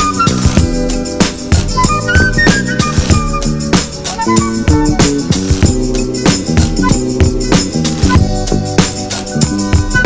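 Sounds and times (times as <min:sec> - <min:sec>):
music with drum beat and melody: 0:00.0 - 0:10.0.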